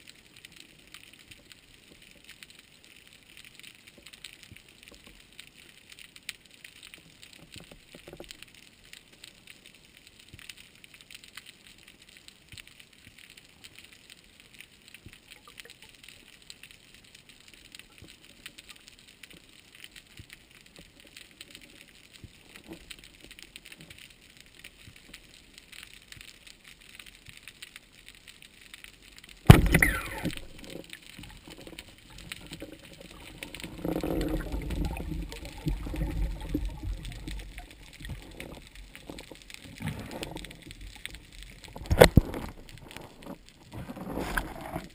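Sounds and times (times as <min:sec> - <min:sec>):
underwater crackle of tiny clicks: 0:00.0 - 0:44.9
rushing water: 0:29.0 - 0:44.9
sudden loud bang: 0:29.5 - 0:30.3.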